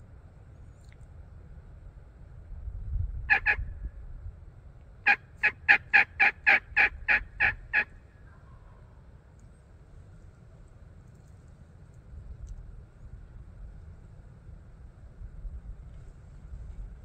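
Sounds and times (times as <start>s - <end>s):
turkey yelping: 3.3s - 3.7s, 5.0s - 8.8s.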